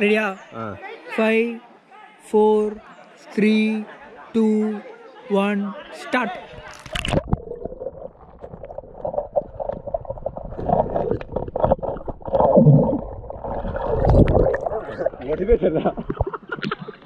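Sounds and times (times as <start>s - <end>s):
underwater gurgling and bubbling: 7.0s - 16.4s.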